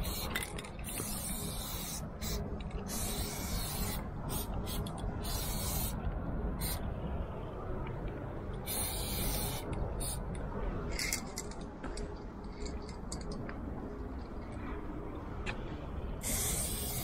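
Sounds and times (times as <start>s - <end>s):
spray paint can hissing: 0.0s - 6.0s, 6.6s - 6.8s, 8.6s - 10.2s, 16.2s - 17.0s.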